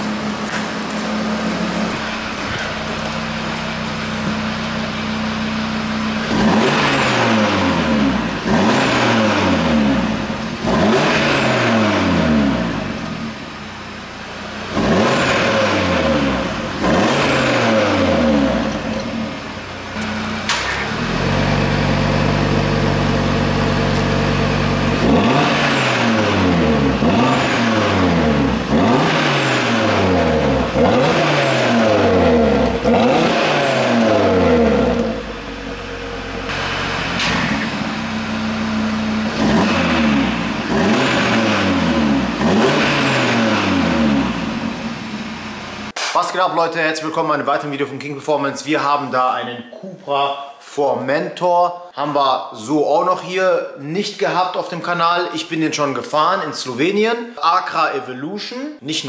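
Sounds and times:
car engine revving: 0.0s - 46.0s.

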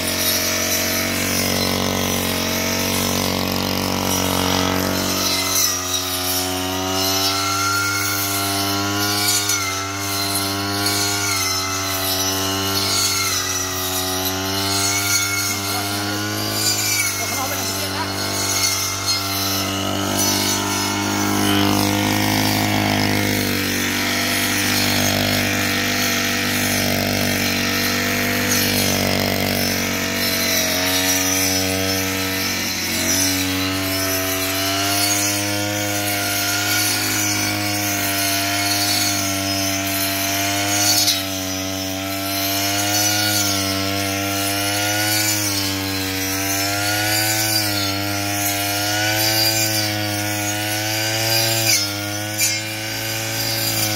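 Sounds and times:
brush cutter engine running: 0.0s - 53.9s.

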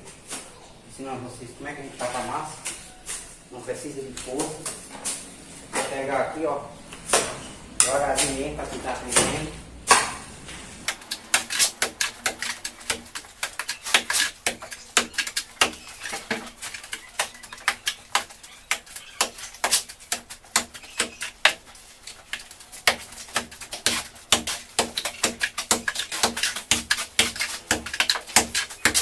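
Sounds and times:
trowel clicking and scraping mortar: 10.9s - 29.0s.

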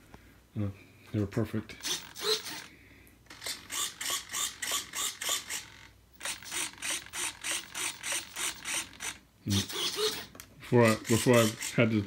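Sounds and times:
servo gear buzz: 1.8s - 2.7s, 3.3s - 11.9s.

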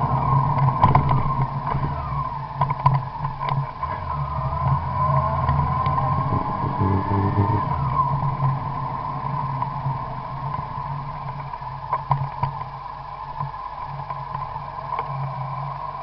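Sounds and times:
car cabin low hum: 0.0s - 16.0s
constant high tone: 3.4s - 12.2s
sliding tone: 3.8s - 11.6s.

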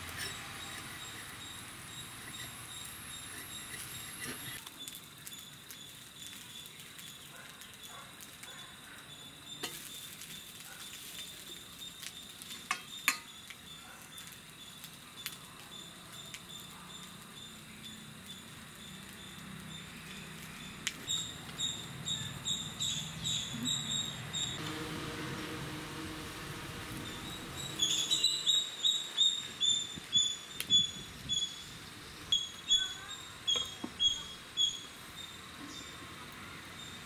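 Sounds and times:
bread sizzling in oil: 0.0s - 37.0s
high chirping: 15.8s - 24.6s, 27.0s - 36.0s.

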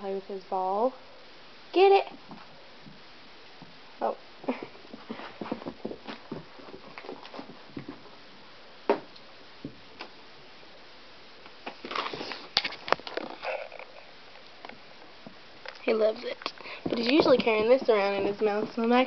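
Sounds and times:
paws and ball knocking on floor: 4.5s - 8.1s, 16.8s - 19.0s.

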